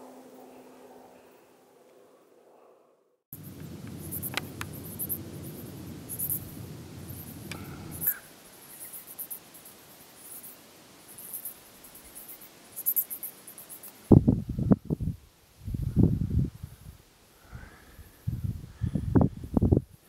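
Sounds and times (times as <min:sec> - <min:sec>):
crickets chirping: 0:03.3 - 0:14.7
low rumble: 0:03.4 - 0:08.1.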